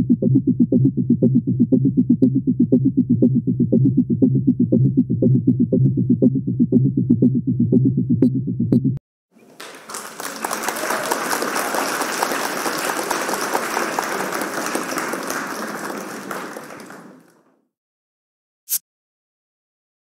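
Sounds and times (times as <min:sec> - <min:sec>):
crowd applause: 0:09.4 - 0:17.6.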